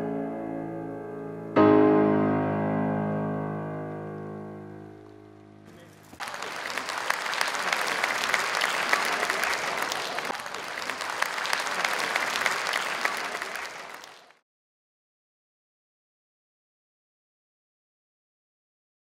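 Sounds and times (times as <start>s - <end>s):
audience applauding: 5.7s - 14.4s.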